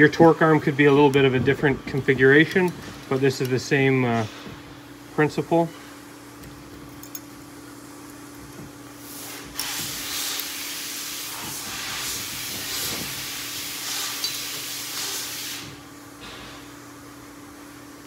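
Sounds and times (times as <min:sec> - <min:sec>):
steady hiss: 0:08.9 - 0:15.9.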